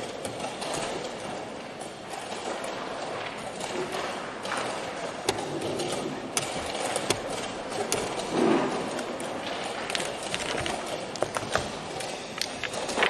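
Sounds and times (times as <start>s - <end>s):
playing hall background noise: 0.0s - 13.0s.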